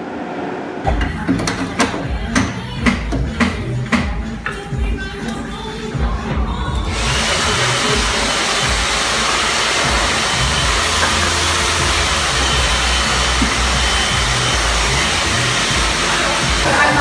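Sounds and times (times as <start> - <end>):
music playing: 0.2 - 17.0
hair dryer blowing: 6.7 - 17.0.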